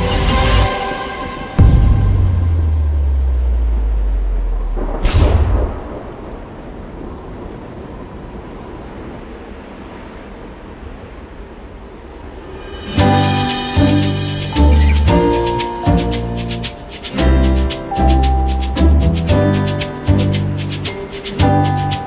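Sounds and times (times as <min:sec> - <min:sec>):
deep bass drone: 0:01.6 - 0:05.7
impact hit with sweep: 0:01.6 - 0:06.4
noisy rumble: 0:01.6 - 0:21.9.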